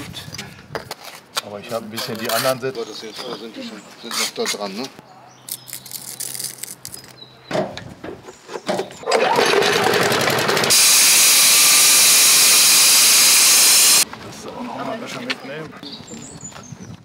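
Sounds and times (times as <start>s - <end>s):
power tool cutting stone: 9.2s - 14.0s.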